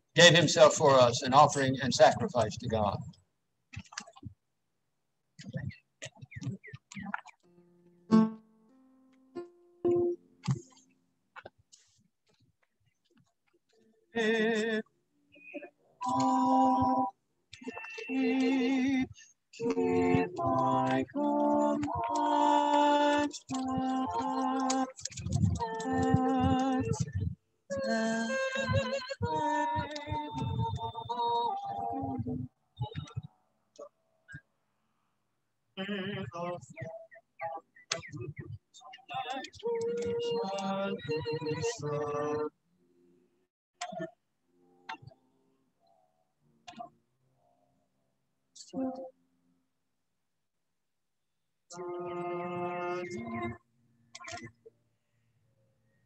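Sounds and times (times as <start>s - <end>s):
garbled broken music: 5.4s - 11.6s, 14.2s - 34.5s, 35.8s - 42.5s, 51.8s - 54.8s
small choir singing: 16.0s - 33.1s, 39.6s - 42.5s, 51.8s - 53.6s.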